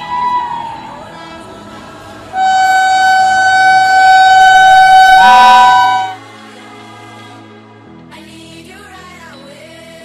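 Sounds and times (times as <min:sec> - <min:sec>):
locomotive horn blast: 0:00.0 - 0:01.2, 0:02.3 - 0:06.2.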